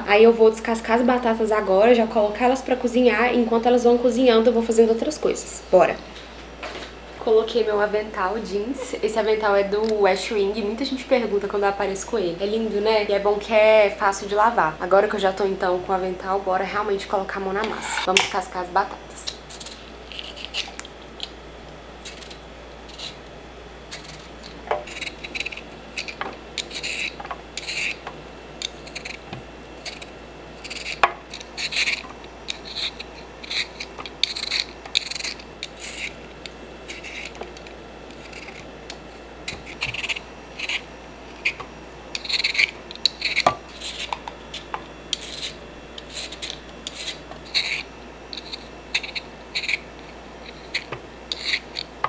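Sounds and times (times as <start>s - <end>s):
peeler scraping potato: 17.5s - 18.2s, 19.2s - 21.4s, 22.0s - 23.3s, 23.9s - 52.0s.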